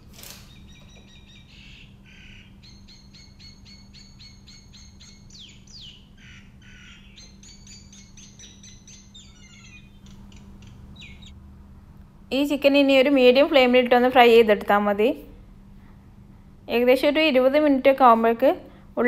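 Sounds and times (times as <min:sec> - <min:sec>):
steady low hum: 0:00.0 - 0:19.0
small birds chirping: 0:00.4 - 0:11.4.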